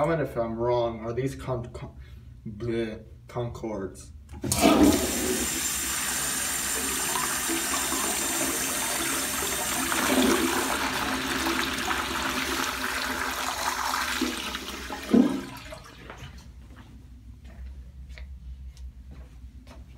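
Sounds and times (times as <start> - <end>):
toilet flushing: 4.4 - 16.4.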